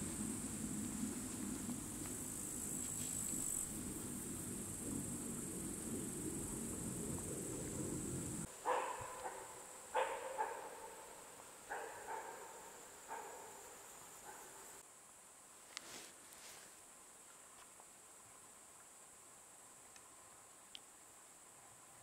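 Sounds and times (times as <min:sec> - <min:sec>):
low rumble: 0:00.0 - 0:08.5
insects chirring: 0:00.0 - 0:15.2.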